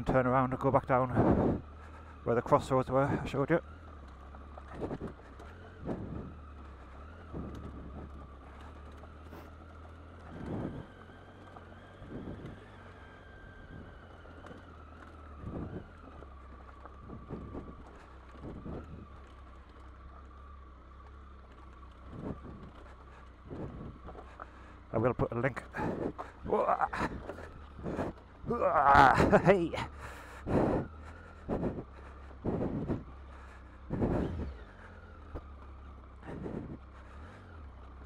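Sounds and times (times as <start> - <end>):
motorcycle engine running: 0.0 - 38.0.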